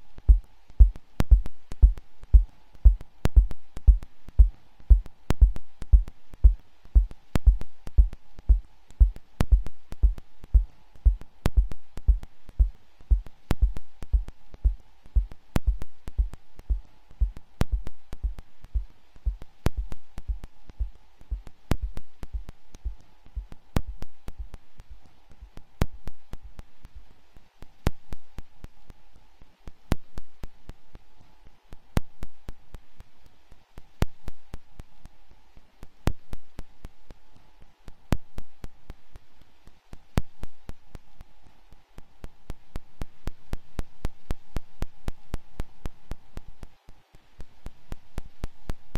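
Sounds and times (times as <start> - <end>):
faint steady tone: 0.0 - 48.9
soft low thuds: 0.2 - 27.1.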